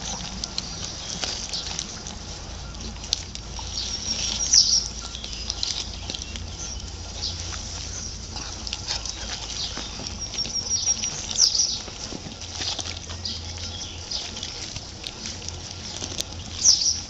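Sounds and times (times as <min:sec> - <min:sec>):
puppies chewing and tearing meat: 0:00.0 - 0:17.0.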